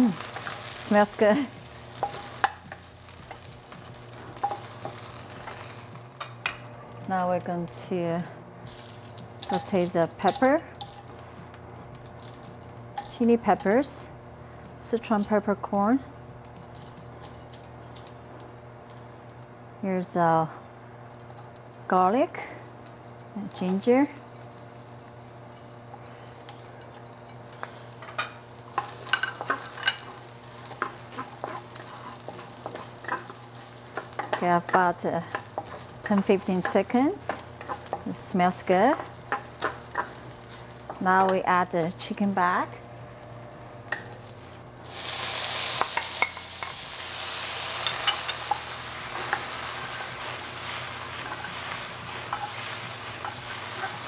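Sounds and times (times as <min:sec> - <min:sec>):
oil sizzling: 0:00.0 - 0:18.7, 0:21.0 - 0:54.0
steady low hum: 0:00.0 - 0:54.0
wooden spatula scraping a pan: 0:28.8 - 0:41.0, 0:44.9 - 0:54.0.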